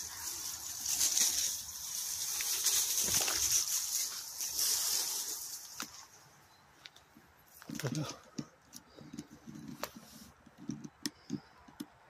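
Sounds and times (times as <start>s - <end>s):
footsteps through leaf litter: 0.0s - 6.3s
high-pitched hiss: 0.0s - 6.4s.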